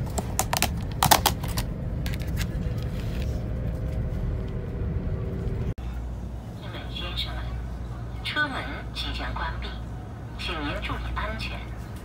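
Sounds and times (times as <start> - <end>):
train carriage hum: 0.0 - 12.0
plastic box clicking and crackling: 0.2 - 1.7.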